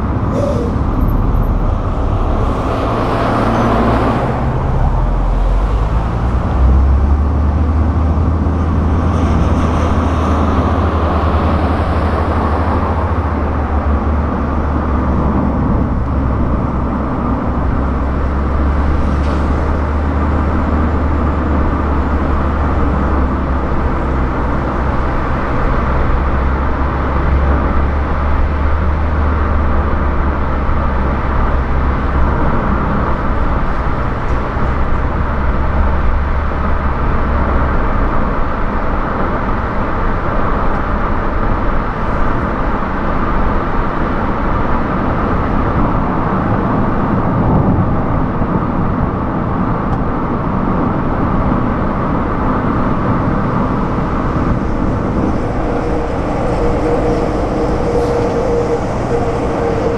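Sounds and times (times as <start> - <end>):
deep car rumble: 0.0 - 59.9
tyre and road noise: 0.0 - 59.9
wind rush: 0.0 - 59.9.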